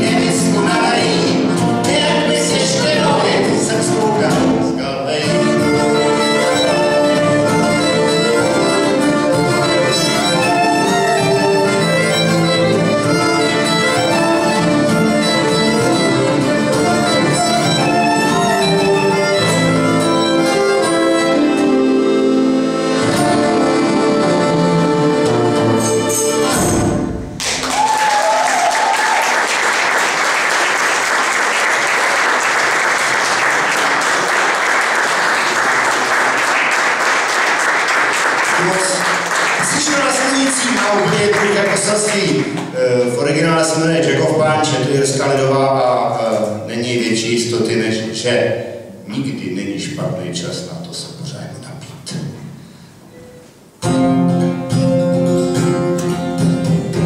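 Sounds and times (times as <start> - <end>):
accordion: 0.0 - 26.7
acoustic guitar: 0.0 - 27.5, 33.0 - 57.0
fiddle: 5.1 - 26.5
audience applause: 27.4 - 42.7.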